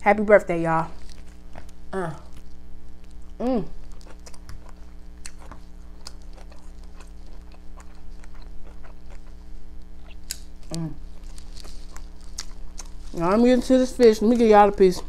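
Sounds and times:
chewing noises: 1.0s - 15.0s
person humming: 1.9s - 2.4s, 3.4s - 3.8s, 10.7s - 11.0s.

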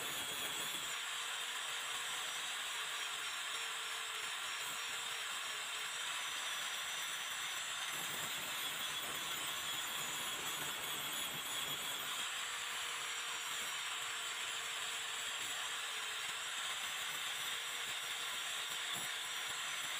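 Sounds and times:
angle grinder grinding steel: 0.0s - 1.2s, 6.2s - 19.9s.

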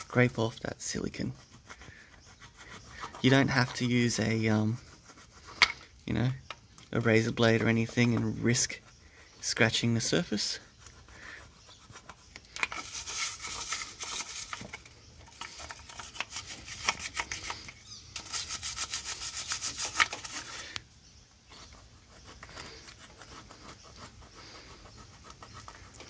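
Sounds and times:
plastic scraper scraping sealant: 9.4s - 20.8s.

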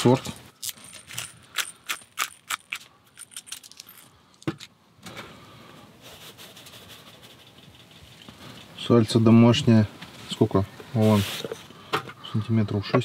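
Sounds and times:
faint steady hiss: 3.8s - 13.0s.

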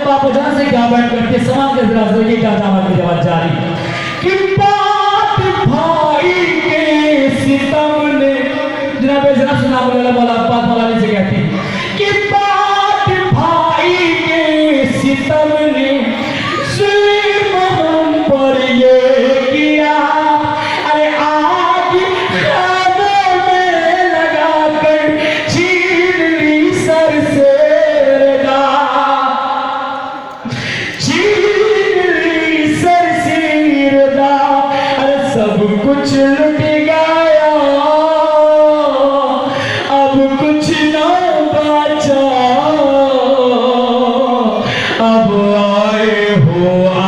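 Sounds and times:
men chanting a lament in unison: 4.0s - 30.3s.

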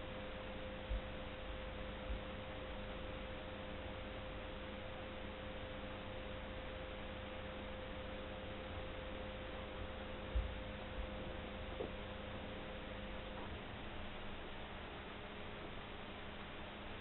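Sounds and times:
constant electrical tone: 0.0s - 17.0s
soft low thump: 10.3s - 10.6s.

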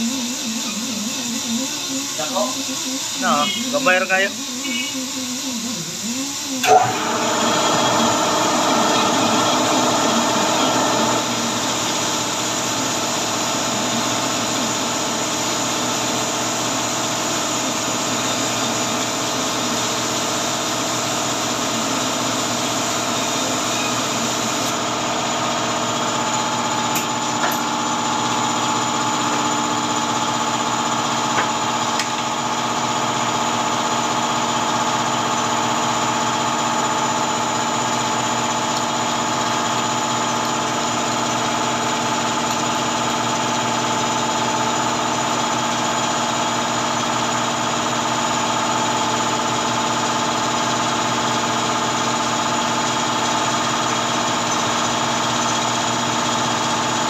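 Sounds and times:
pneumatic buffer on rubber: 0.0s - 57.0s.

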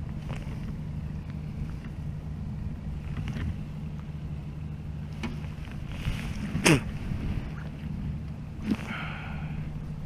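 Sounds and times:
outboard motor running: 0.0s - 10.0s
wind on microphone: 5.7s - 9.0s.

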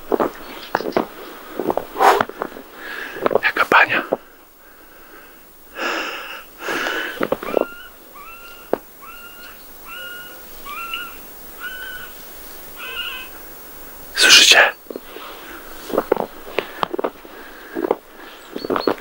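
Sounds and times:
short squeaky calls: 7.4s - 12.2s, 12.8s - 13.4s.

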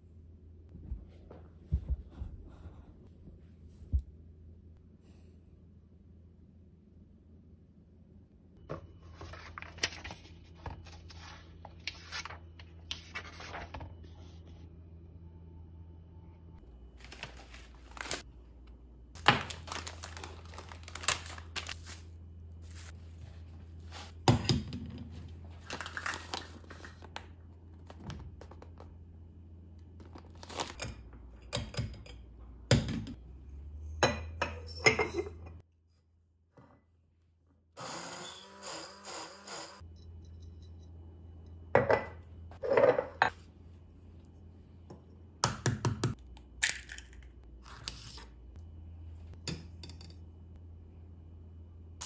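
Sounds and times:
plastic packaging crinkling: 17.0s - 18.3s, 19.2s - 22.1s, 25.5s - 27.2s, 30.0s - 30.8s.

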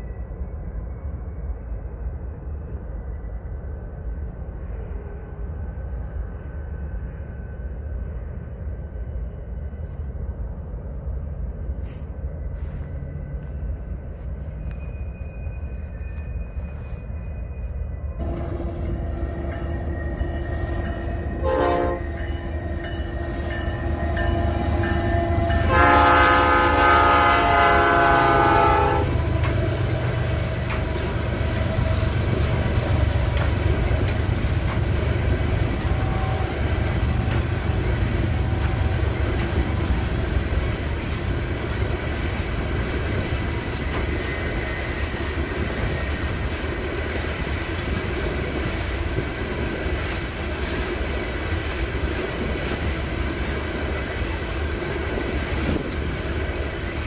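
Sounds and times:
low rumble of rail yard: 0.0s - 57.0s
locomotive air horn: 21.4s - 22.2s, 24.5s - 29.3s.

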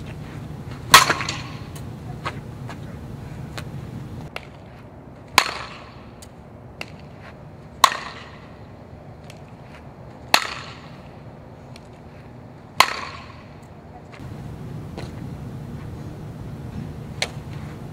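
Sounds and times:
bat cracking ball: 0.8s - 1.8s, 5.3s - 6.2s, 7.8s - 8.6s, 10.3s - 11.1s, 12.8s - 13.6s, 17.2s - 17.5s.

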